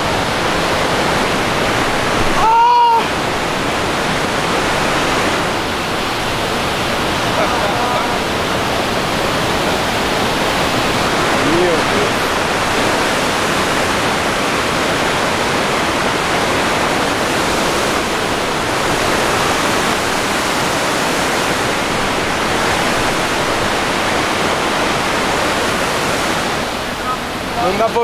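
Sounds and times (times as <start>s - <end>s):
waterfall roaring: 0.0s - 28.0s.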